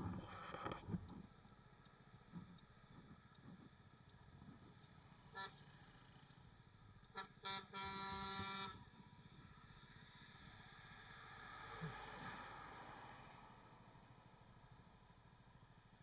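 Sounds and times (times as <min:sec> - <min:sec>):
traffic noise: 0:00.0 - 0:16.0
vehicle horn honking: 0:07.2 - 0:08.8.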